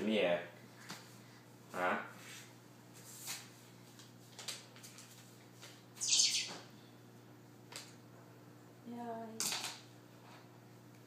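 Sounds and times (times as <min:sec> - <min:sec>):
baby squealing: 0:06.0 - 0:06.6.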